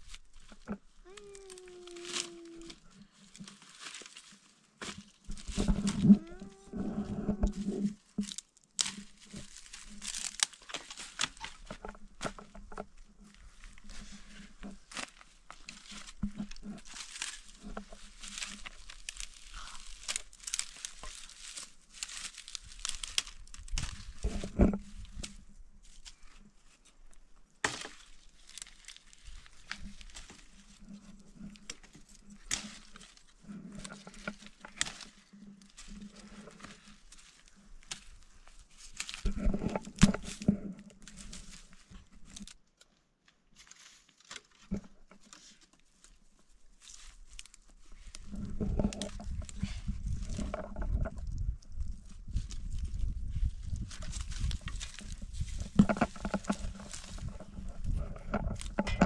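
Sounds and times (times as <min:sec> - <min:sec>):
crinkling and rustling: 0:00.0 - 0:59.0
small clicks and crackles: 0:00.0 - 0:59.0.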